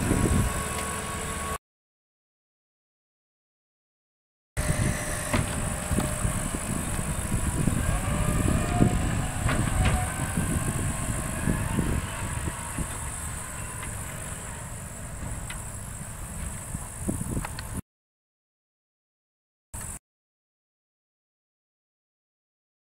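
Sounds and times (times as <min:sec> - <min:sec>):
diesel truck engine rumbling: 0:00.0 - 0:01.6, 0:04.6 - 0:17.8
truck body knocking over bumps: 0:05.2 - 0:07.8, 0:08.4 - 0:16.7.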